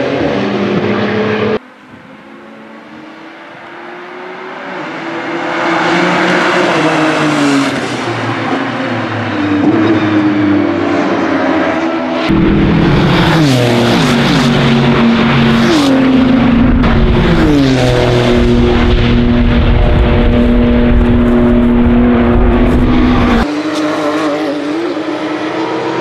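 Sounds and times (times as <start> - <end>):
race car engine revving: 0.0 - 26.0.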